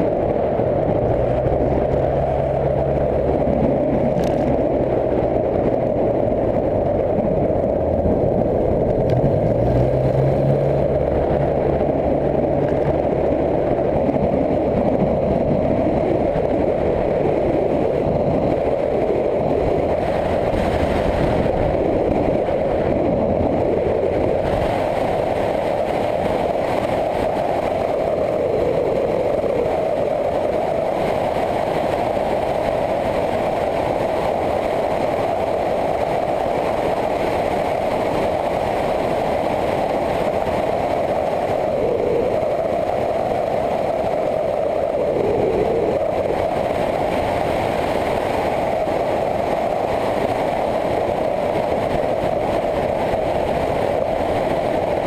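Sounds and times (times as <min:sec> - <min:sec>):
motorcycle engine running: 0:00.0 - 0:28.6
wind rush on microphone: 0:00.0 - 0:55.0.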